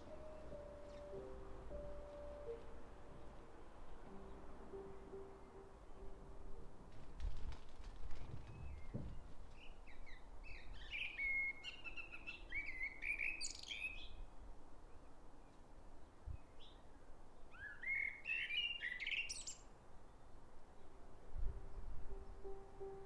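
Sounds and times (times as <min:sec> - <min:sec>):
blackbird singing: 0:08.5 - 0:14.3, 0:17.5 - 0:19.7.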